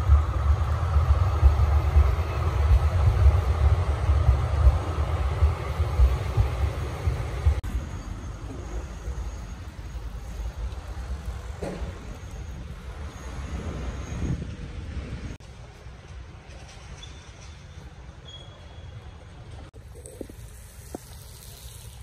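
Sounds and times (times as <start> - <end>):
moving vehicle rumble: 0.0 - 22.0.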